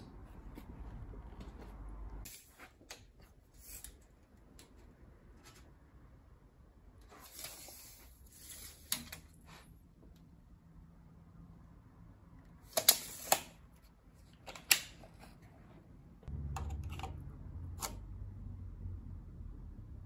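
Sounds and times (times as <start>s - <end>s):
tape measure clicks and rustles: 12.7s - 13.6s.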